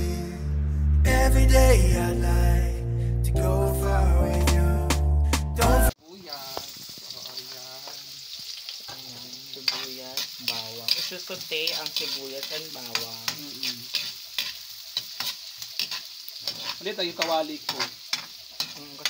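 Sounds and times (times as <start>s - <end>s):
onion and garlic sizzling: 5.7s - 19.0s
metal spatula scraping wok: 8.9s - 19.0s.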